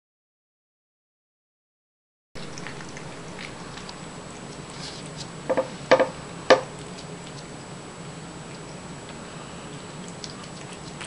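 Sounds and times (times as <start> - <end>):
cat chewing and licking: 2.4 - 11.0.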